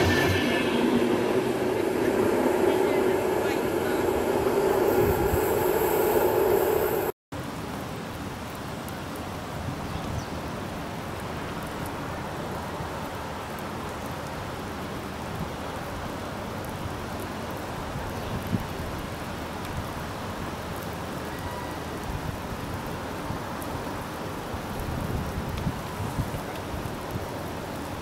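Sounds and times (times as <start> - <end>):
loud rumble: 0.0 - 7.2
outdoor background hiss: 0.0 - 28.0.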